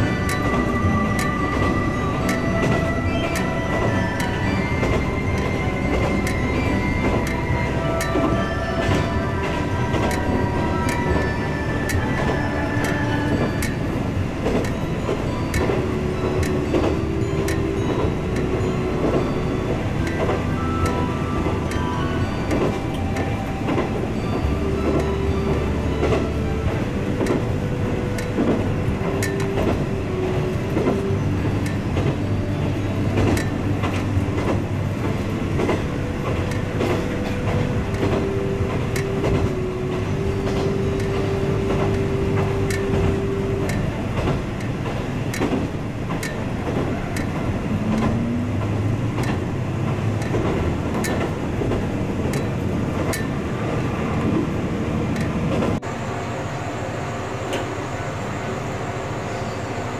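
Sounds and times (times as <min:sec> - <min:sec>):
wheels clacking over rail joints: 0:00.0 - 0:55.9
diesel railcar engine droning: 0:00.0 - 0:59.9.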